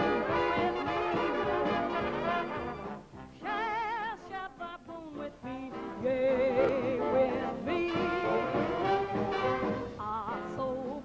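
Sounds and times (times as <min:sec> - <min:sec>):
swing jazz band: 0:00.0 - 0:04.5, 0:05.1 - 0:11.0
woman singing wordless notes: 0:03.4 - 0:11.0.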